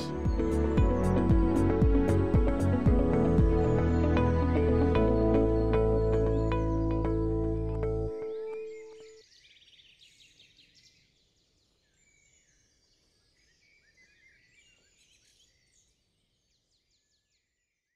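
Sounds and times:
background music: 0.0 - 9.0.

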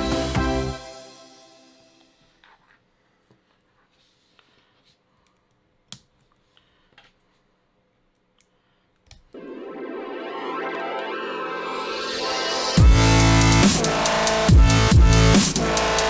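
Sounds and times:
electronic dance music: 9.4 - 16.0.

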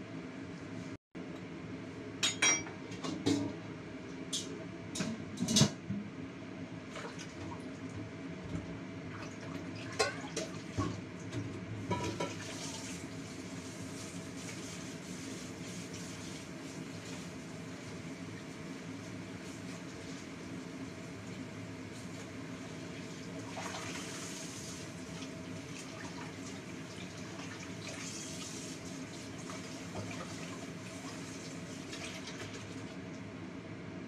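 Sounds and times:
dishes and kitchenware clinking: 2.2 - 3.5, 4.4 - 5.8, 9.9 - 10.5, 11.9 - 12.4.

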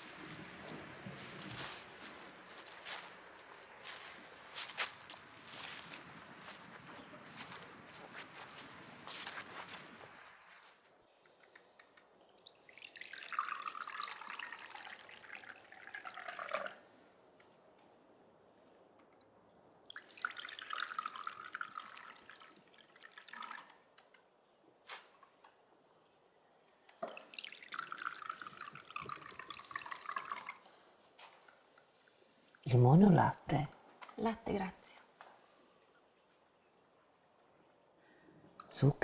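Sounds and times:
tea pouring into cups: 0.0 - 9.7, 11.4 - 17.0, 19.7 - 24.3, 26.0 - 32.7.

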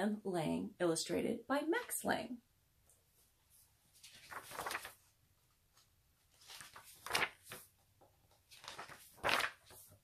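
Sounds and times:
book pages rustling: 3.1 - 10.0.

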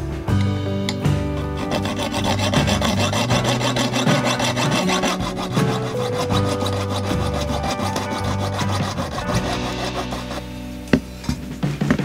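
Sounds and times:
background music: 0.0 - 12.0
saw rasping through acrylic: 1.6 - 10.5.

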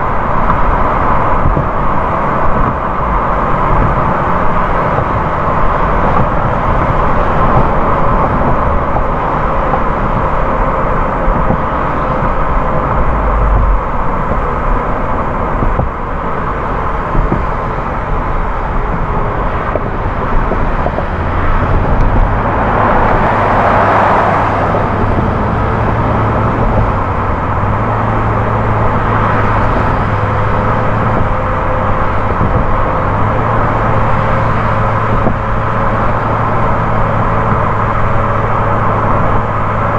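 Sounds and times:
low engine hum: 0.0 - 39.9
tyre and road noise: 0.0 - 39.9.

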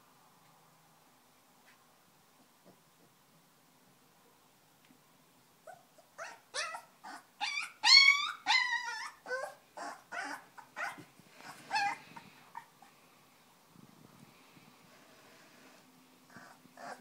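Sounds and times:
puppy whimpering: 5.7 - 12.9, 16.3 - 17.0.

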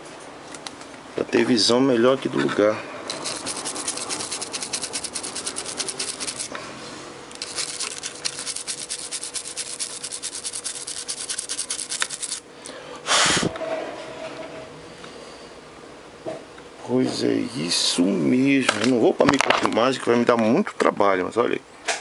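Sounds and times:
scrubbing a circuit board: 3.1 - 6.5, 7.4 - 12.4.

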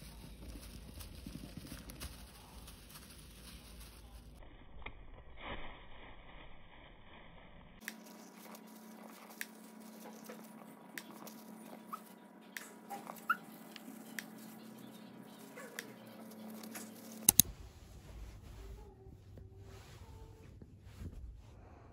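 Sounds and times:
hamster scrabbling in bedding: 0.0 - 4.4, 7.8 - 21.2
hamster squeaks: 11.0 - 17.4
loud clicks: 17.1 - 17.5.

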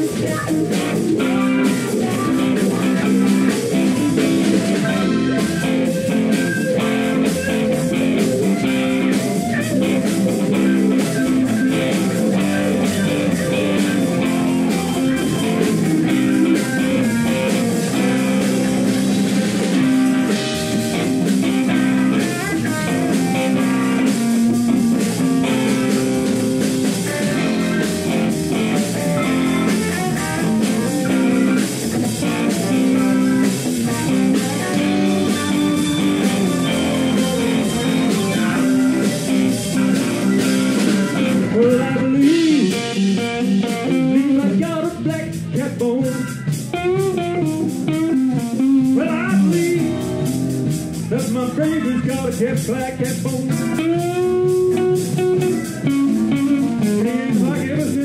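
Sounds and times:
live blues band playing: 0.0 - 58.0.

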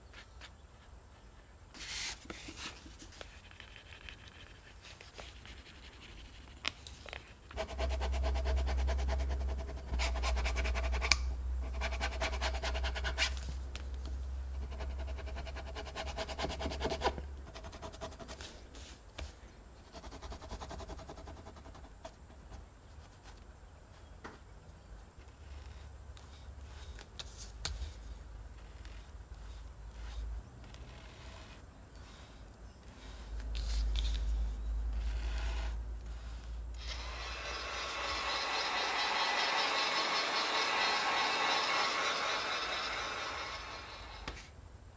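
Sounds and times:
rasping strokes on leather: 28.6 - 33.4
knife scraping leather edge: 30.0 - 31.6.

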